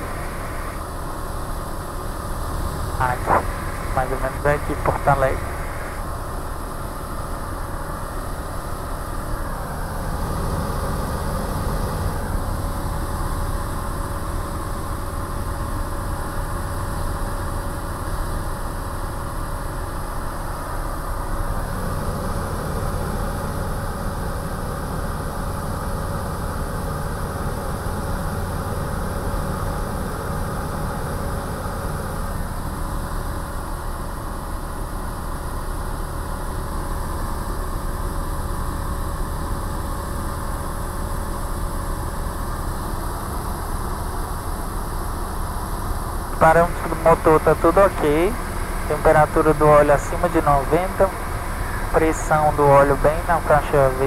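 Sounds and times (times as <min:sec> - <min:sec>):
light aircraft engine drone: 0:00.0 - 0:54.0.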